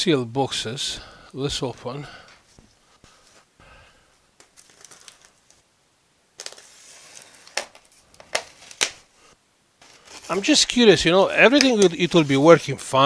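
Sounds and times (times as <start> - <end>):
polystyrene foam crinkling and scraping: 4.5 - 5.6, 6.4 - 9.1, 9.8 - 13.0.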